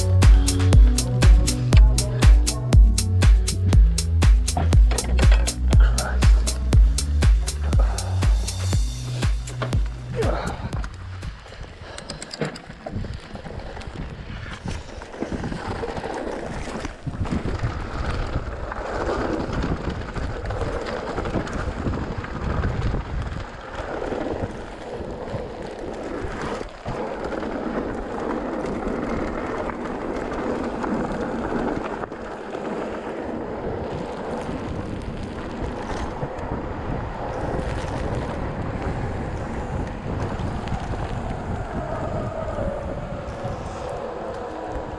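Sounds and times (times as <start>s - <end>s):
bike tyres rumbling on trail: 0.0s - 44.9s
wind rushing over microphone: 0.0s - 44.9s
bike knocking over bumps: 4.4s - 6.5s.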